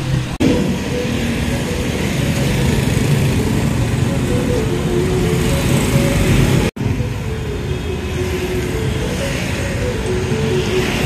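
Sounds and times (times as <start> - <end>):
motorbike engines running: 0.0 - 11.0
street traffic rumble: 0.0 - 11.0.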